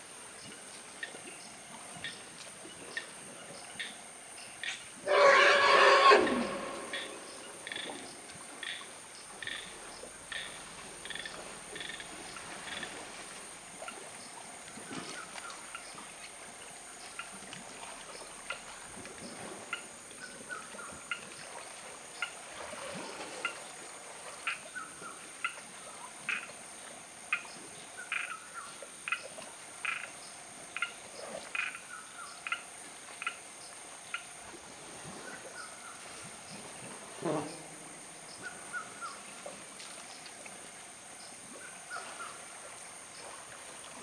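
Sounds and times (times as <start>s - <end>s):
chorus of insects: 0.0s - 17.4s.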